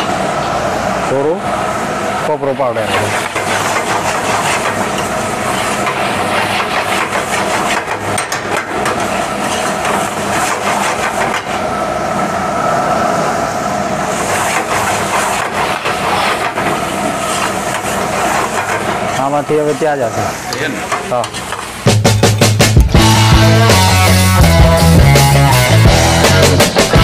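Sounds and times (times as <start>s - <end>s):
gas flame roaring: 0.0s - 27.0s
steel ladle scraping a pan: 2.9s - 7.9s.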